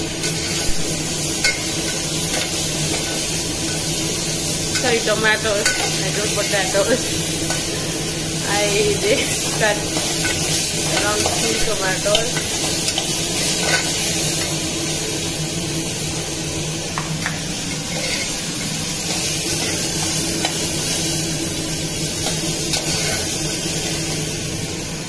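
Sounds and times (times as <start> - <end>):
vegetables sizzling in a pot: 0.0 - 25.0
spoon scraping a pan: 0.2 - 0.8, 4.7 - 8.0, 9.0 - 14.6, 17.2 - 20.7, 22.2 - 23.4.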